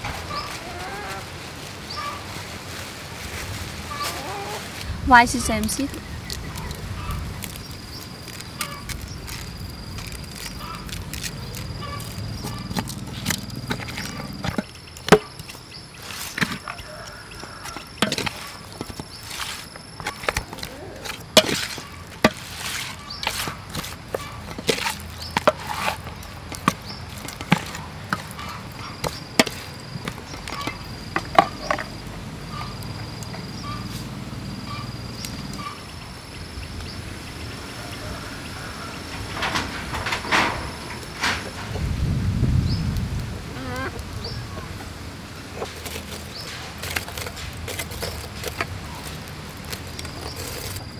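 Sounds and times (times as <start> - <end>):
insects chirping: 3.6 - 50.9
wooden spoon scraping metal bowl: 8.3 - 30.8.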